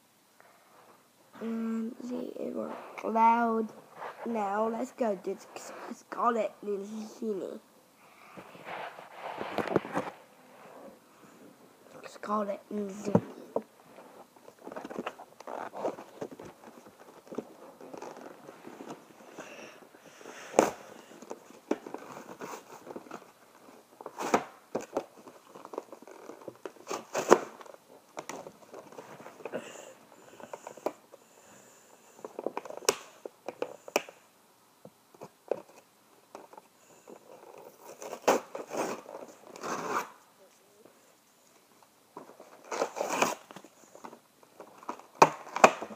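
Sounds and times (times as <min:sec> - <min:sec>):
packaging crinkling and rustling: 0:20.4 - 0:29.5.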